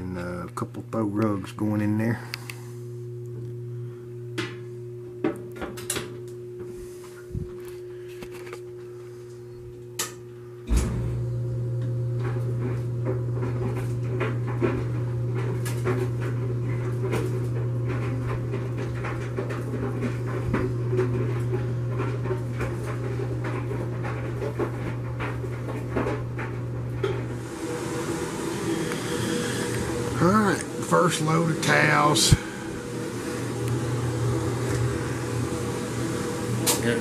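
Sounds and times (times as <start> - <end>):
dryer motor humming: 0.0 - 37.0.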